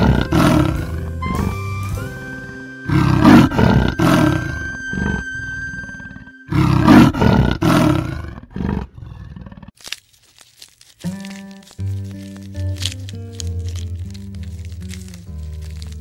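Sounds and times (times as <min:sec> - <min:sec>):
leopard roaring: 0:00.0 - 0:01.6, 0:02.9 - 0:09.8.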